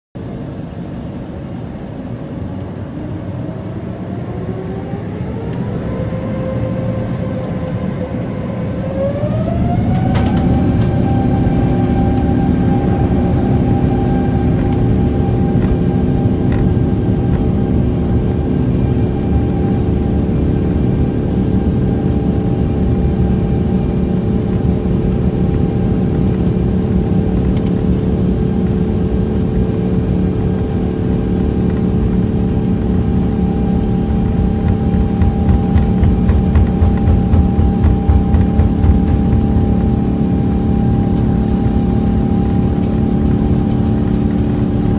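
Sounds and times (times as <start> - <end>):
jet engines whining: 0.2 - 44.9
loud rumble: 29.9 - 44.9.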